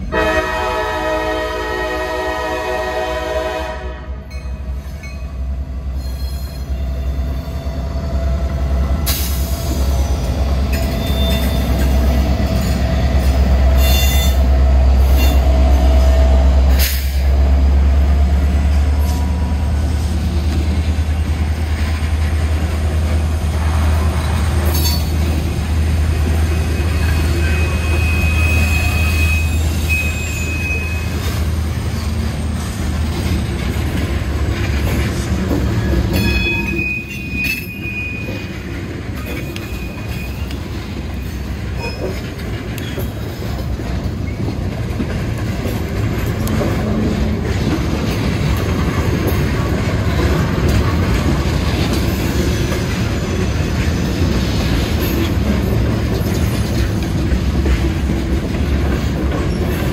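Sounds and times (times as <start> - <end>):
train wheels rumbling on rails: 0.0 - 59.9
high-pitched wheel squeals: 10.7 - 11.8, 26.5 - 31.3, 35.8 - 38.5, 39.2 - 40.6.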